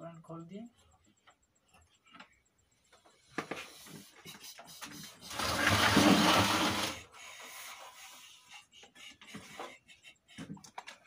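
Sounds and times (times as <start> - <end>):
television dragged on wooden bench: 5.3 - 7.0.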